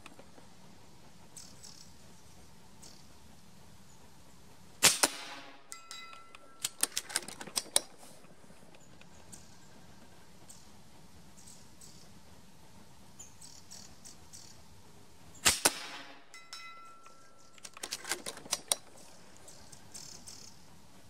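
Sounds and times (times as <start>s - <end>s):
air rifle shot: 4.8s - 5.6s, 15.4s - 16.2s
sharp clicks: 5.9s - 8.0s, 17.0s - 20.5s.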